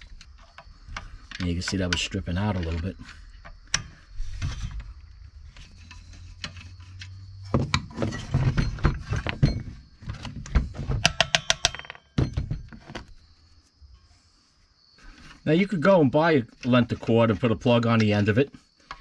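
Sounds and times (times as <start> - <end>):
metallic clinks: 11.0 - 12.7.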